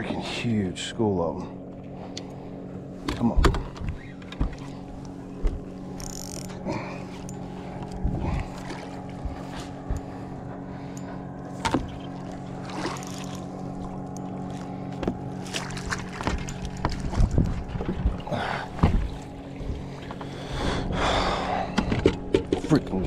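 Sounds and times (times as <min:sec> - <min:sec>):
boat engine low hum: 0:00.0 - 0:23.0
knocks on boat: 0:03.0 - 0:04.6, 0:11.6 - 0:12.0, 0:18.7 - 0:19.1
water splashing: 0:11.6 - 0:13.6, 0:15.3 - 0:20.1.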